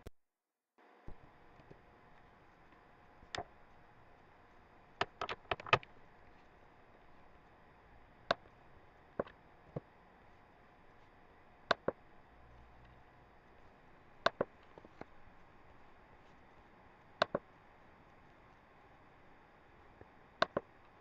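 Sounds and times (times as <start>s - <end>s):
faint steady hiss: 0.8s - 21.0s
mouse and keyboard clicks: 5.0s - 5.9s, 17.2s - 17.5s, 20.4s - 20.7s.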